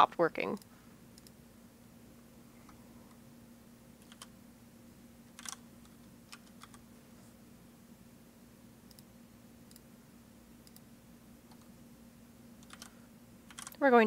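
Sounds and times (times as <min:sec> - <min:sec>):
low steady hum: 0:00.0 - 0:14.0
computer keys typing: 0:04.0 - 0:04.3, 0:05.4 - 0:06.8, 0:10.6 - 0:10.9, 0:12.6 - 0:13.8.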